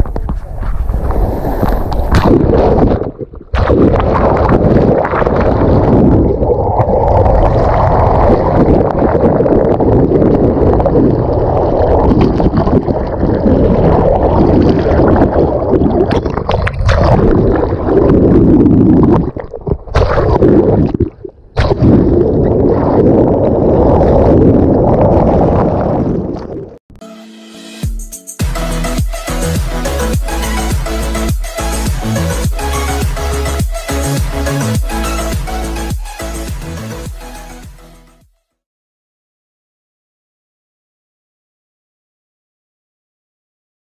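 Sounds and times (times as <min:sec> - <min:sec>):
sea water rushing around boat: 0:00.0 - 0:18.3.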